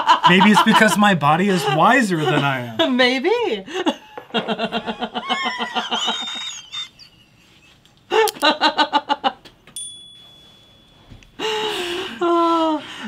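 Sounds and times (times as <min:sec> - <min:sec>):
people laughing: 0:00.0 - 0:03.1, 0:03.7 - 0:09.4.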